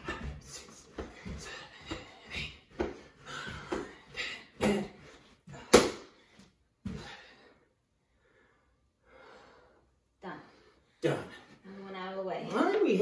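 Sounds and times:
feet thudding on floor: 0.0 - 7.3
hard breathing: 0.0 - 12.1.

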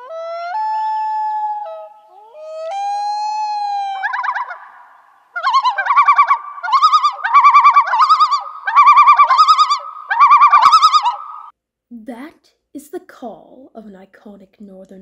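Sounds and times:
loon calling: 0.0 - 11.5.

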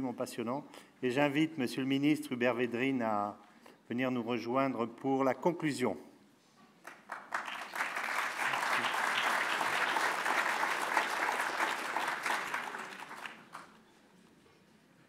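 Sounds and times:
audience applauding: 6.8 - 13.8.

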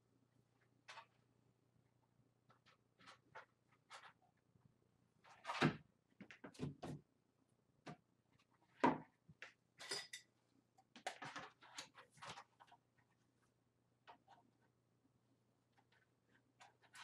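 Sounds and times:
rustles and scrapes of handling: 2.5 - 4.5, 11.1 - 14.8, 15.7 - 17.0.

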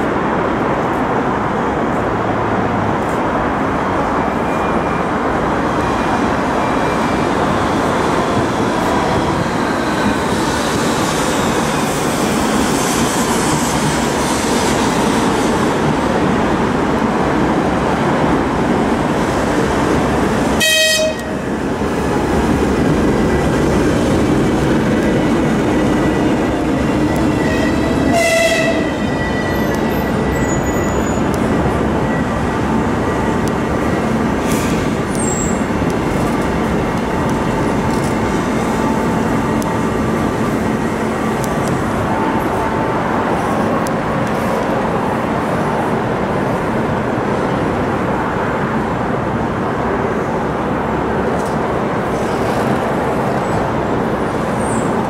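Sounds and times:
diesel locomotive engine: 0.0 - 55.0
wheel and rail noise: 0.0 - 55.0
locomotive horn toots: 20.6 - 21.4, 26.9 - 31.0.

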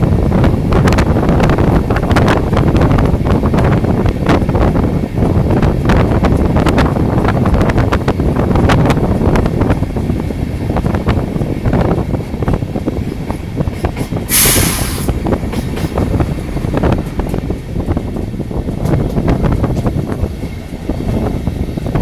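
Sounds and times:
train wheels clattering on rails: 0.0 - 22.0
wind on microphone: 0.0 - 22.0
short hiss: 14.3 - 15.2.

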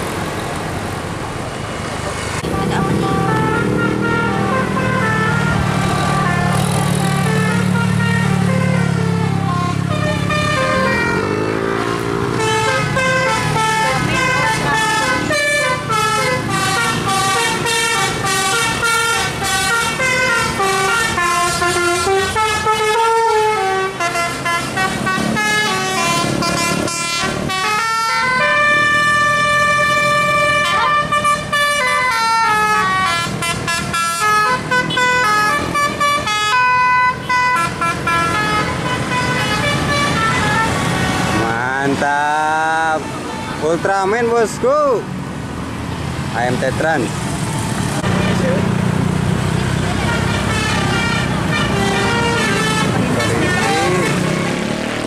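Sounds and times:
musical air horn melody: 2.4 - 41.5, 50.0 - 55.0.

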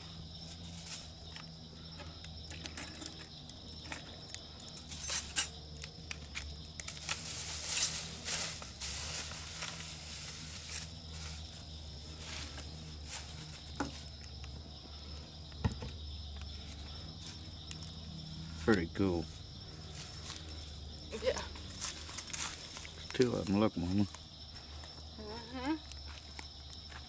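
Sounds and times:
wood fire crackling and popping: 2.2 - 8.2
steady high hiss: 3.0 - 15.5
fire hissing: 4.2 - 15.5.

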